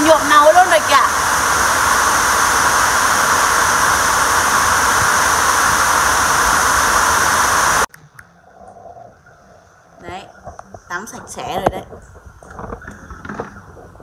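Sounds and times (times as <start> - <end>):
loud steady rushing noise: 0.0 - 7.9.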